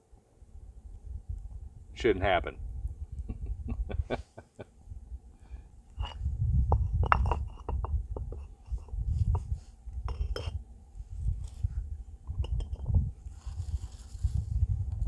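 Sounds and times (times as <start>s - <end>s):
low rumble: 0.6s - 15.0s
bricks knocking on stone: 6.7s - 8.6s.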